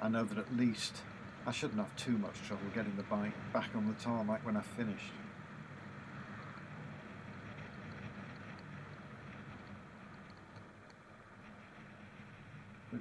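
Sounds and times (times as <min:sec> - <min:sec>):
wind and road noise: 0:00.0 - 0:13.0.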